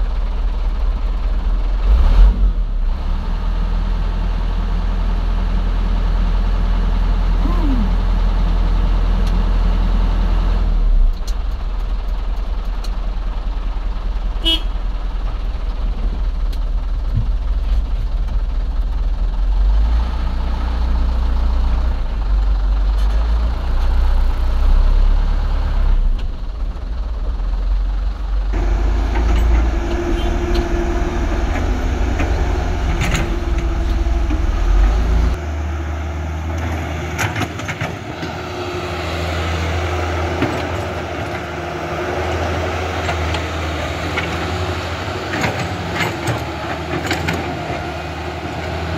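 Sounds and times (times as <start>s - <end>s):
diesel truck engine rumble: 0.0s - 48.9s.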